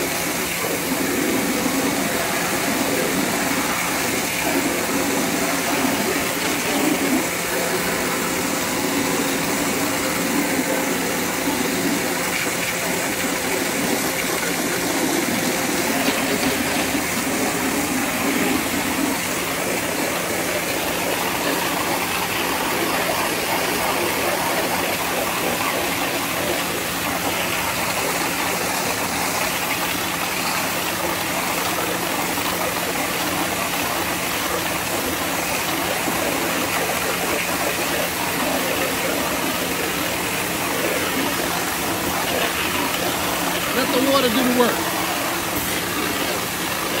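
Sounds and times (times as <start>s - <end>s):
pressure washer motor humming: 0.0s - 47.0s
water jet hissing on siding: 0.0s - 47.0s.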